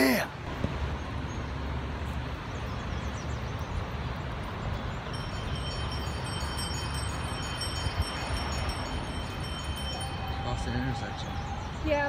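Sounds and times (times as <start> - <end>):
bell ringing: 5.1 - 11.5.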